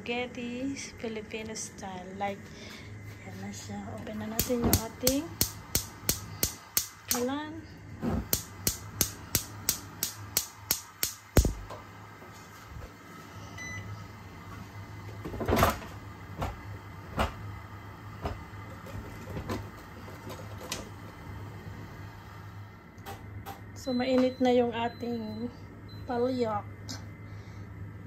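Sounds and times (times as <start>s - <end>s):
steady low hum: 0.0s - 28.0s
gas stove igniter clicking: 4.3s - 7.4s, 8.3s - 11.8s
burner catching with low thump: 11.4s - 11.7s.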